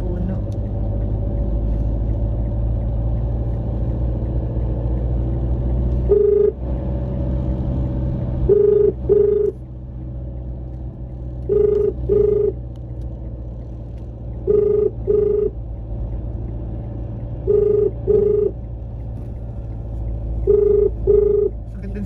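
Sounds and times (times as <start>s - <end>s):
low rumble of moving car: 0.0s - 22.0s
telephone ringback tone: 6.1s - 6.6s, 8.5s - 9.5s, 11.5s - 12.6s, 14.5s - 15.5s, 17.5s - 18.5s, 20.4s - 21.5s.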